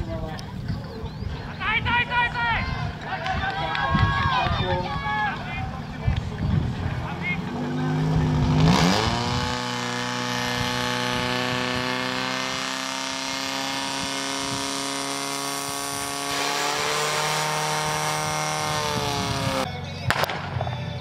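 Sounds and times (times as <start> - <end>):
pump engine running at high revs: 6.8 - 19.7.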